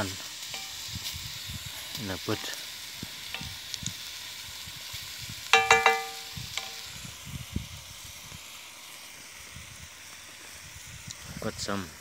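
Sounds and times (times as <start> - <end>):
food sizzling in a pot: 0.0 - 12.0
ringing metallic clanks: 5.6 - 6.8
wooden spoon knocking pot: 5.6 - 6.8.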